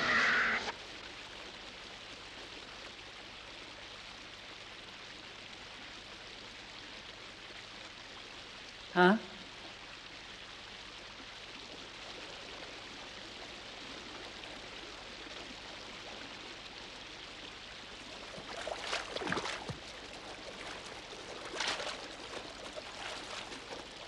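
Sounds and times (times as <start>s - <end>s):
flowing river water: 0.0s - 24.0s
water splashes: 0.0s - 24.0s.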